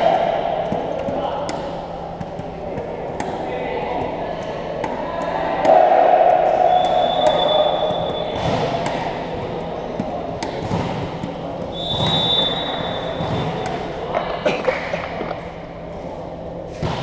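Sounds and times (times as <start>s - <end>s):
hall chatter: 0.0s - 16.6s
volleyball thumping on floor: 0.1s - 14.2s
referee's whistle blast: 6.6s - 8.4s, 11.7s - 13.1s.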